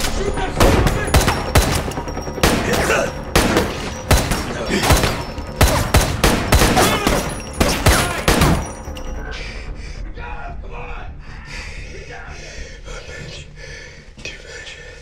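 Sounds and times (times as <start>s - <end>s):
sharp ringing bangs: 0.6s - 9.0s.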